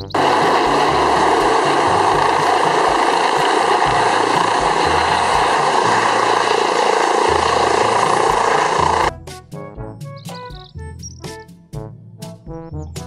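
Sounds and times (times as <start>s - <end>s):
helicopter rotor and turbine noise: 0.0s - 9.1s
faint music bass line: 0.0s - 13.0s.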